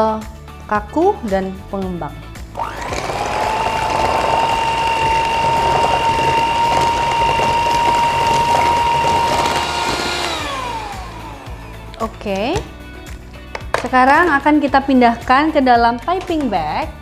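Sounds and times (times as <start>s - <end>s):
electric hand mixer running: 2.5s - 12.0s
mixer motor winding down: 2.5s - 12.0s.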